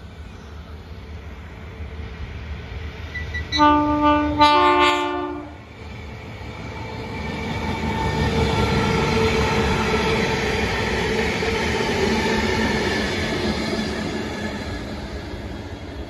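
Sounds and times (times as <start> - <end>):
diesel locomotive engine drone: 0.0 - 16.0.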